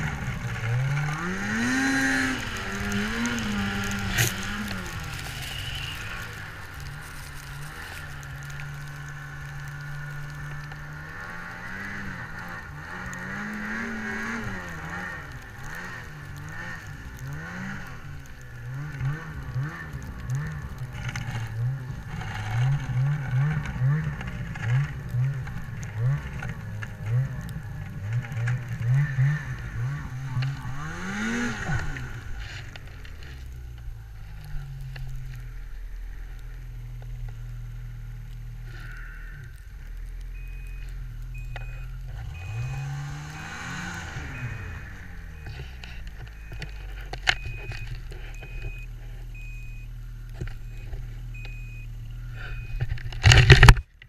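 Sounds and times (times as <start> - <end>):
snowmobile engine revving: 0.0 - 33.6, 40.4 - 53.7.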